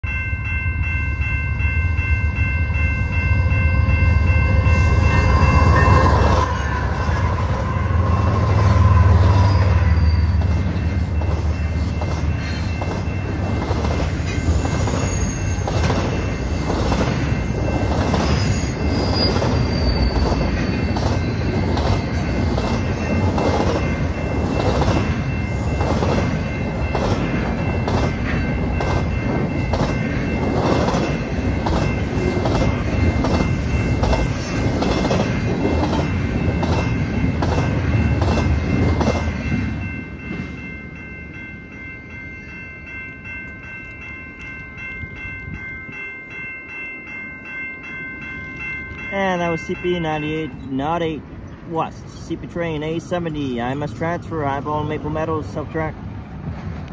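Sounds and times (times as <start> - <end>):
high ringing tone: 0.0 - 51.6
diesel locomotive rumble: 0.1 - 40.8
high wheel squeals: 4.3 - 13.6, 14.2 - 16.7, 17.3 - 24.3.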